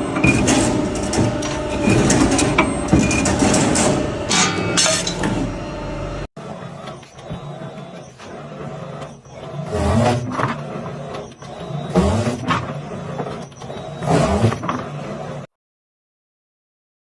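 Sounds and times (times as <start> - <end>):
cutting machine running quietly: 0.0 - 9.8
machine hum: 0.0 - 15.5.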